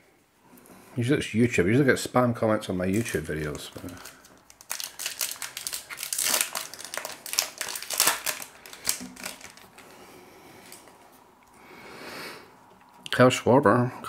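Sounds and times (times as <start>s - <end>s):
foil wrapper crinkling: 2.8s - 10.0s.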